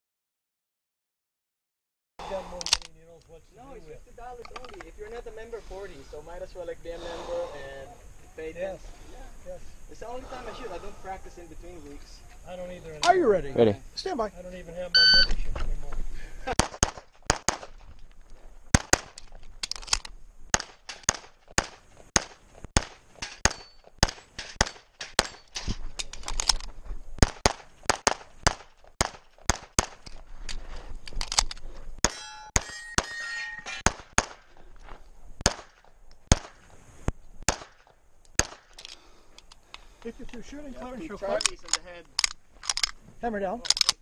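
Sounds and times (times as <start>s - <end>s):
pistol shots: 16.6s - 17.7s, 18.7s - 19.2s, 20.5s - 25.5s, 27.2s - 30.0s, 35.4s - 36.6s, 37.5s - 38.8s
steel targets clanging: 32.0s - 34.0s.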